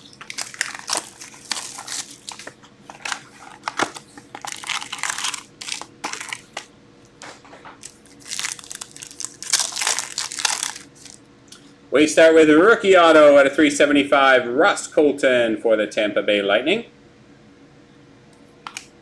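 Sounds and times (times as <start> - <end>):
cardboard and wrapper crinkling: 0.0 - 6.7, 7.8 - 11.2.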